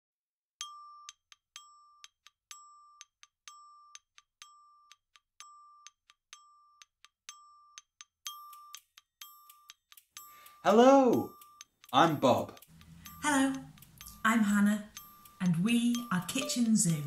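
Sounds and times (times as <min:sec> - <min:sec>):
bell-like mallet percussion jingle: 0:00.6 - 0:17.0.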